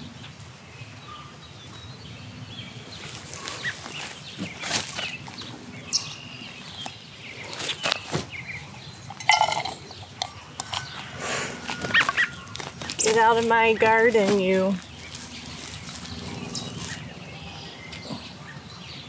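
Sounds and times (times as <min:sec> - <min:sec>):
low background hum: 0:00.0 - 0:19.0
birds chirping: 0:00.7 - 0:19.0
hands rustling and patting soil: 0:03.0 - 0:05.7, 0:06.6 - 0:08.8, 0:11.0 - 0:17.1.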